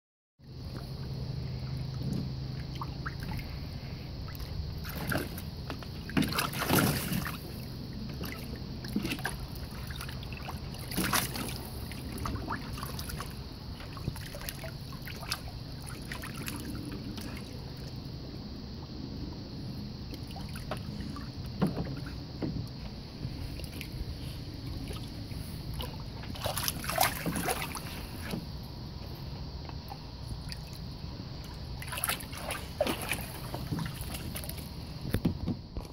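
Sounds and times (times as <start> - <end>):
dog splashing in water: 4.3 - 7.6, 8.2 - 17.9, 25.8 - 28.4, 31.8 - 34.8.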